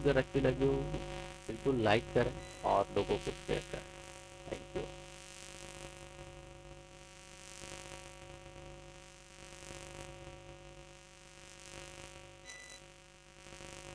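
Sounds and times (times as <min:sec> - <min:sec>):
faint hiss: 0:00.0 - 0:04.9
electrical hum: 0:00.0 - 0:13.9
high beep: 0:02.4 - 0:02.7, 0:12.5 - 0:12.8.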